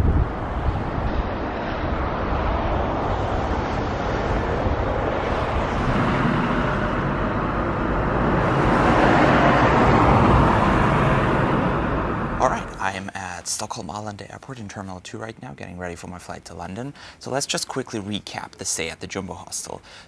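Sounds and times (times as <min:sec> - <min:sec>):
cars driving past: 0:00.0 - 0:12.8.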